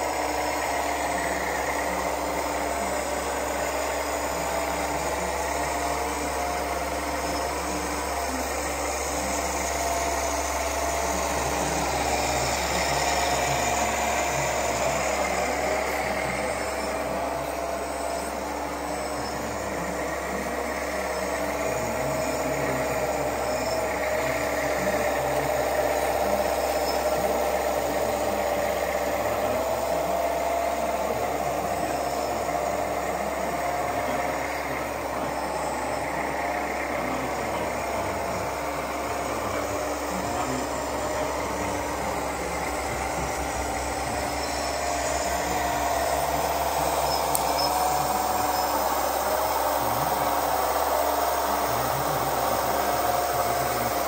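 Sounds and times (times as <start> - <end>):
model truck motor whine: 0.0 - 54.0.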